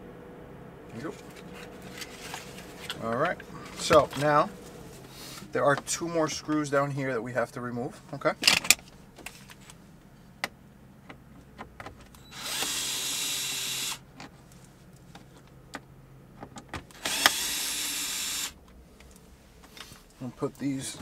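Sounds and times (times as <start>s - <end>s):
electric screwdriver motor running: 12.3s - 14.0s, 17.0s - 18.6s.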